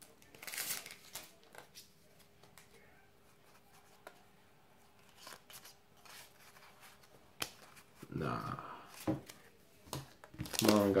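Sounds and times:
trading cards rustling and flicking: 0.0s - 2.8s, 5.0s - 8.0s, 8.9s - 11.0s.

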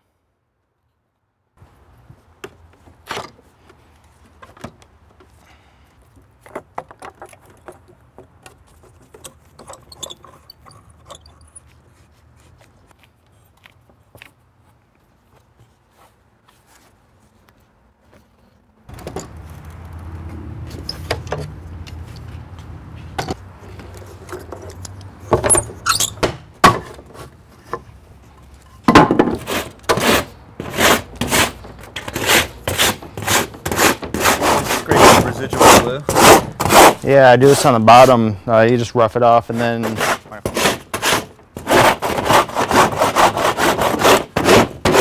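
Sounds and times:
hand plane shaving wood: 29.3s - 38.1s, 39.5s - 45.0s.

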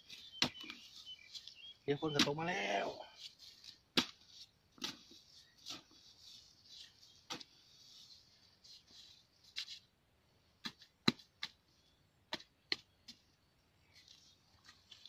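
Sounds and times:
spade chopping into hard soil: 3.9s - 4.2s.

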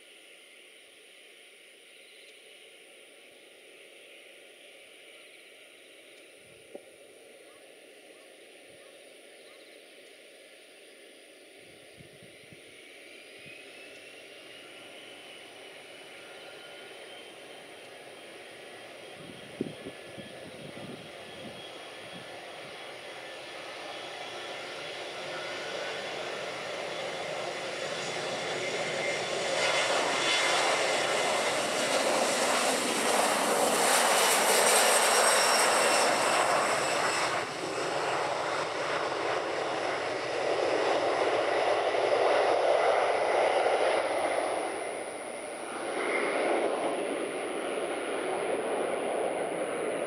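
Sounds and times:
jet engines at takeoff power: 0.0s - 50.0s
high jet whine: 10.5s - 50.0s.

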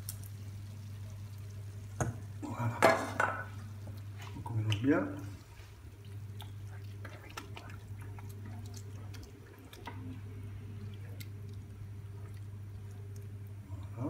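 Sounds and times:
steady low hum: 0.0s - 14.0s
wet squelching of stirred food: 3.4s - 14.0s.

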